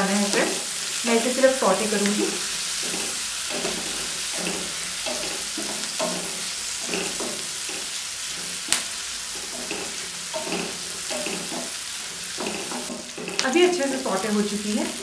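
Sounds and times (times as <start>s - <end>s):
onions sizzling in butter: 0.0s - 15.0s
spatula scraping pan: 0.0s - 15.0s.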